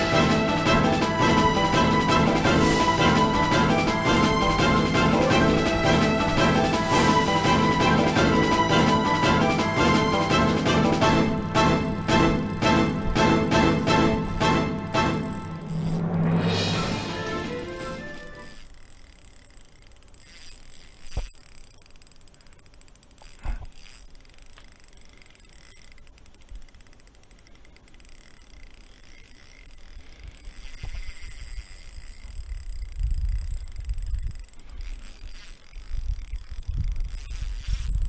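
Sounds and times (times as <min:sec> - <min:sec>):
fishing reel winding: 0:00.0 - 0:11.4, 0:12.1 - 0:16.5, 0:17.1 - 0:38.0.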